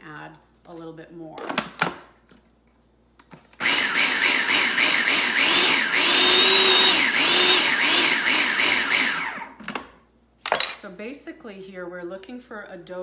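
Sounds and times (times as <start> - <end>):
food processor motor whining: 3.6 - 9.6.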